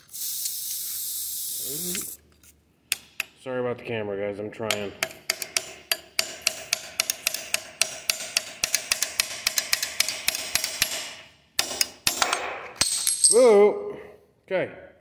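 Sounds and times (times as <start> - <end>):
metal tapping on hammerhead: 4.6 - 12.4.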